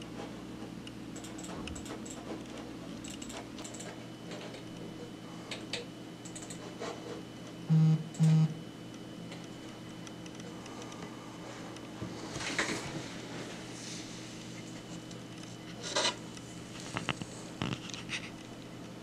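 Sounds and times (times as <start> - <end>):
faint steady hum: 0.0 - 19.0
keyboard typing clicks: 3.0 - 4.0, 5.5 - 6.6
low buzzing electronic beeps: 7.6 - 8.8.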